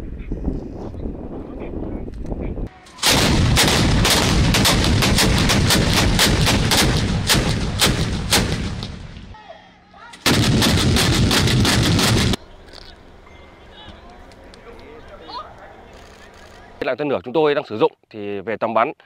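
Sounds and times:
anti-aircraft guns firing rapidly: 3.0s - 9.0s, 10.2s - 12.4s.

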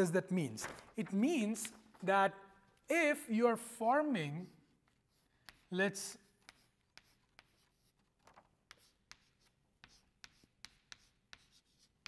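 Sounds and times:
chalk tapping and scraping: 4.1s - 12.0s.

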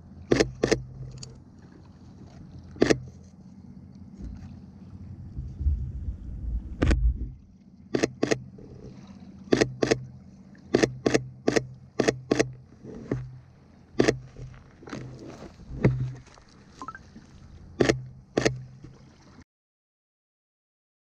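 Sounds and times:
faint low hum: 0.0s - 10.7s.

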